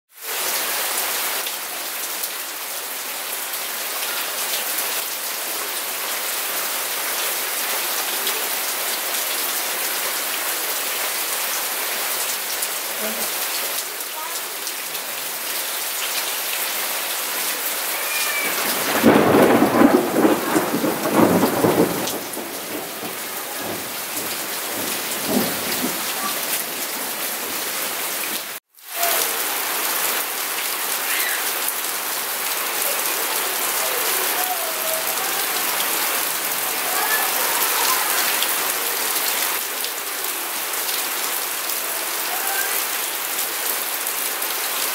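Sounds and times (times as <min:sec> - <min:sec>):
steady rain: 0:00.1 - 0:44.9
thunder rumbling: 0:18.1 - 0:27.5.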